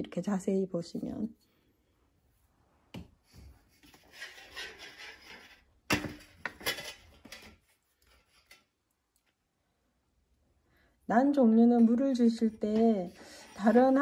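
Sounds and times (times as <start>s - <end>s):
scraping and rubbing: 3.3s - 8.8s, 12.0s - 14.0s.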